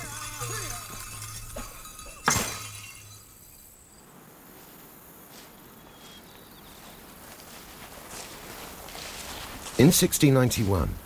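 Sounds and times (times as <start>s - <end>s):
sharp ringing crash: 0.0s - 3.9s
faint steady hiss: 0.0s - 11.0s.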